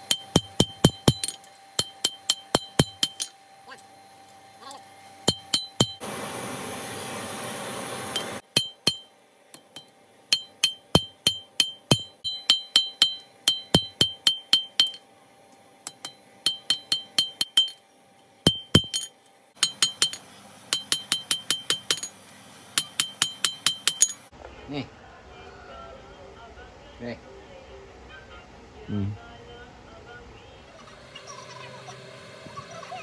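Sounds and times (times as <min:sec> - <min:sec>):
hammer ringing on anvil: 0:00.0 - 0:03.4, 0:05.3 - 0:06.0, 0:08.2 - 0:15.0, 0:15.9 - 0:17.8, 0:18.5 - 0:22.2, 0:22.8 - 0:24.3.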